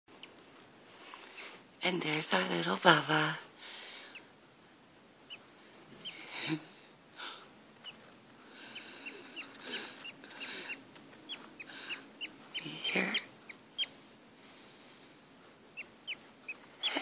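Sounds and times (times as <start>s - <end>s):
bird chick cheeping: 6.0s - 6.3s, 8.6s - 13.9s, 15.8s - 17.0s.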